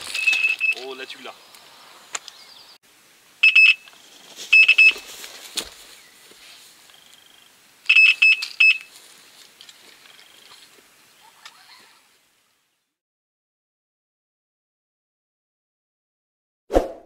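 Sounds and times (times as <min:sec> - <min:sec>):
bite alarm high-pitched beeps: 0:03.4 - 0:03.8, 0:04.6 - 0:05.0, 0:07.9 - 0:08.9.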